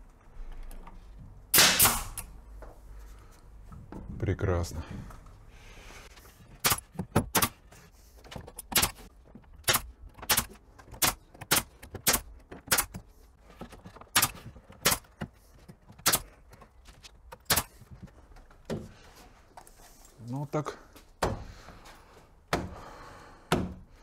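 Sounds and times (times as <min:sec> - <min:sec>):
pneumatic nailer firing: 0:01.5 - 0:02.3, 0:06.6 - 0:07.6, 0:08.6 - 0:13.0, 0:14.1 - 0:15.2, 0:16.0 - 0:16.3, 0:17.4 - 0:17.8.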